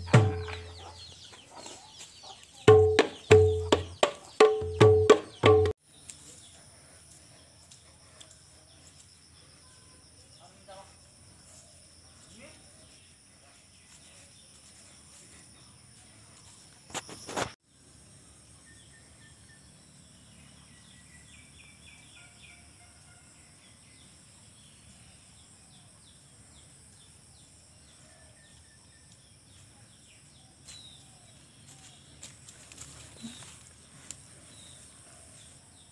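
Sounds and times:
birds chirping: 0.0s - 5.8s
insects chorus: 0.0s - 35.9s.

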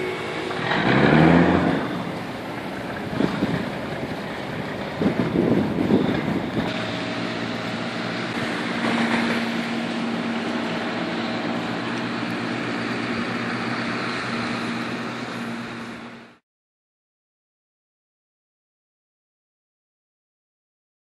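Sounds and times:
boat diesel engine running: 0.0s - 16.4s.

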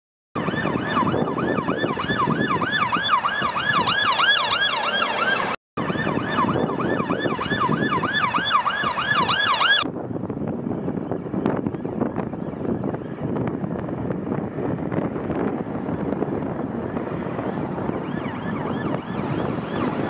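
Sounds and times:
police siren yelping: 0.4s - 9.9s, 17.7s - 20.0s
road traffic noise: 0.4s - 20.0s.

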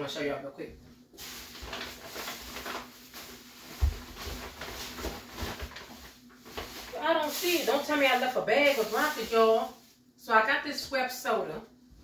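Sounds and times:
shopping bag rustling: 1.2s - 10.1s.

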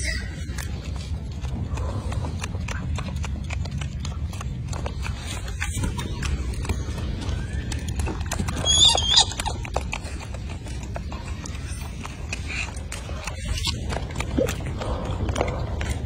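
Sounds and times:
steady low rumble: 0.0s - 16.0s
monkey squeaking: 5.6s - 13.8s.

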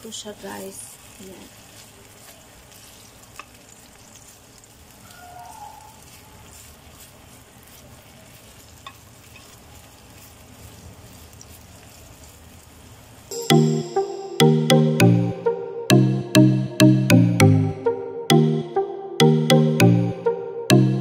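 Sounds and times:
sausages sizzling in a frying pan: 0.0s - 13.7s
loud music: 13.3s - 21.0s.

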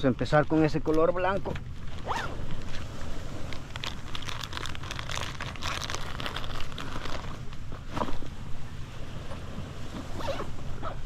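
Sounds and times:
wind and surf rumble: 0.0s - 11.0s
plastic package crinkling: 3.4s - 7.4s.

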